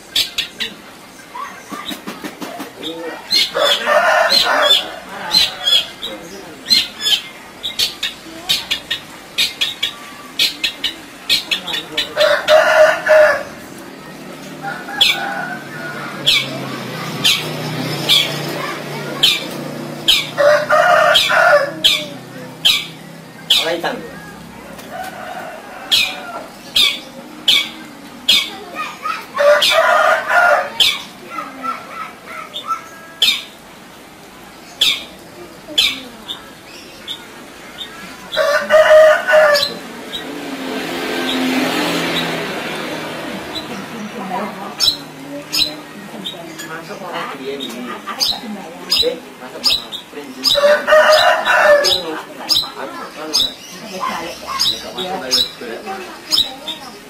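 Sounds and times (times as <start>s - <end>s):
harsh rooster-like crow: 3.6s - 5.8s, 12.2s - 13.5s, 20.4s - 21.9s, 24.9s - 26.5s, 29.4s - 30.9s, 38.3s - 39.8s, 50.6s - 52.1s
bird harsh squawks: 19.2s - 23.8s.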